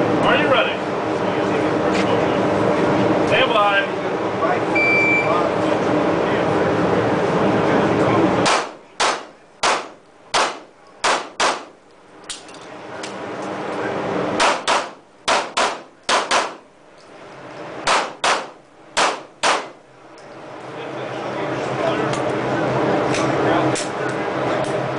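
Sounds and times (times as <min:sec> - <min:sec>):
pistol shots indoors: 0:08.5 - 0:11.7, 0:14.4 - 0:16.6, 0:17.8 - 0:19.8.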